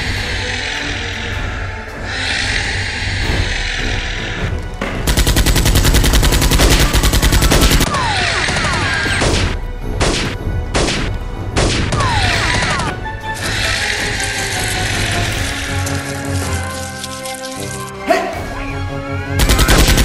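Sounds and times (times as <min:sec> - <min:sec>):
background music: 0:00.0 - 0:20.0
machine-gun burst: 0:05.1 - 0:09.4, 0:19.4 - 0:20.0.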